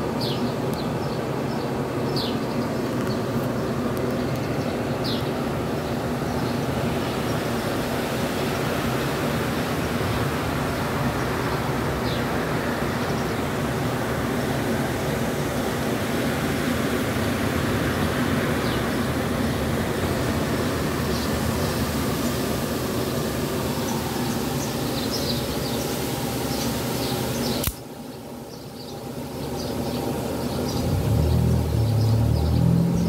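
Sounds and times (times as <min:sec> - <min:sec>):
rushing air noise: 0:04.8 - 0:27.8.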